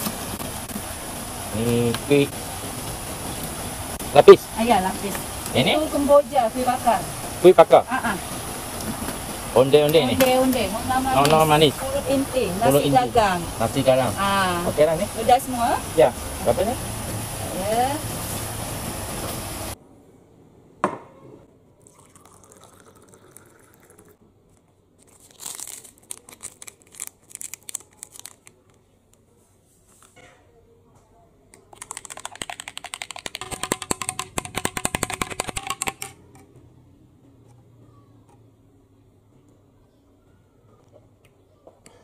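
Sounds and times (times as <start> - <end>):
loud outdoor noise: 0.0 - 21.4
sachet crinkling and tearing: 25.0 - 29.2
powder shaken into water: 31.6 - 36.2.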